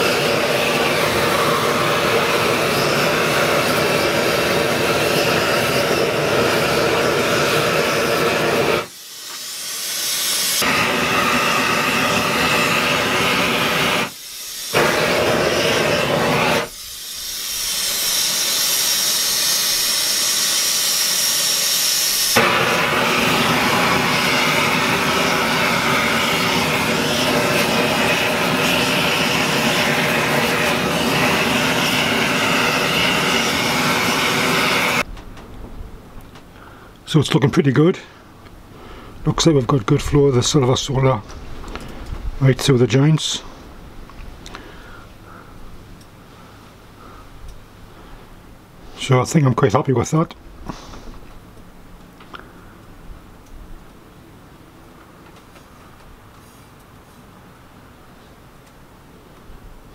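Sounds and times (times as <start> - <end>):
torch burners hissing: 0.0 - 35.1.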